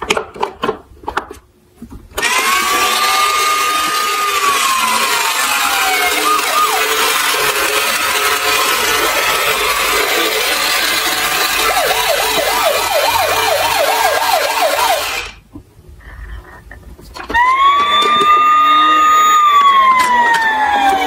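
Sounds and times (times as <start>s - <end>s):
fast wailing toy siren: 2.2s - 15.4s, 17.4s - 21.0s
harsh static-like toy noise: 2.2s - 15.4s, 17.3s - 21.0s.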